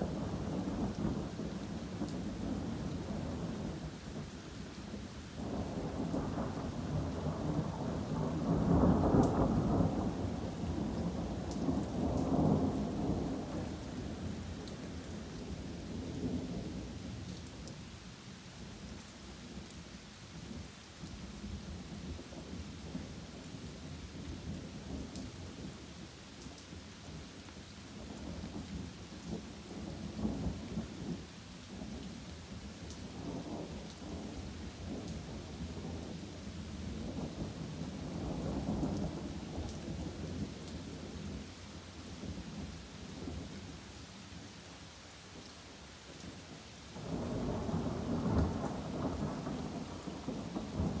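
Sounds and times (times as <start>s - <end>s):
rain falling through trees: 0.0s - 51.0s
rolling thunder: 4.9s - 15.0s, 47.0s - 51.0s.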